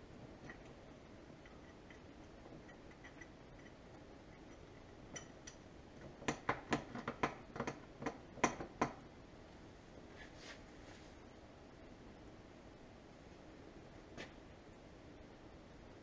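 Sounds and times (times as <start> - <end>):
small metal clicks: 1.4 - 8.7.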